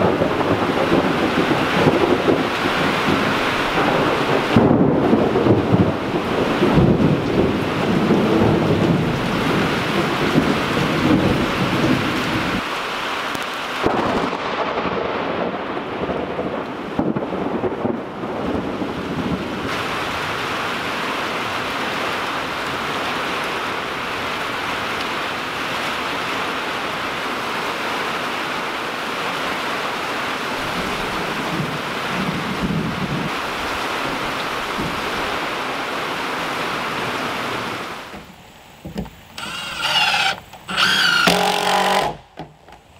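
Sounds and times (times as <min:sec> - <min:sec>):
thunder rumbling: 0:00.0 - 0:12.6, 0:13.8 - 0:20.4, 0:30.6 - 0:35.6
heavy rain downpour: 0:00.0 - 0:42.9.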